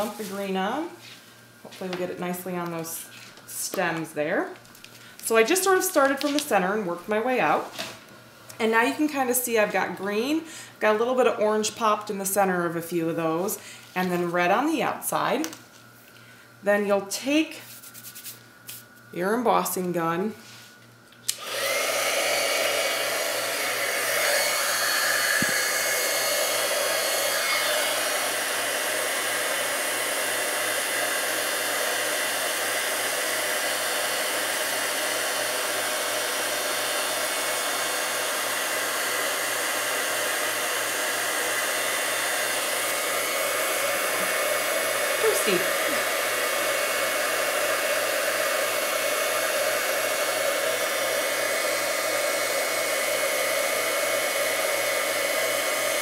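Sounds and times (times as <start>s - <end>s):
heat gun blowing air: 21.3s - 56.0s.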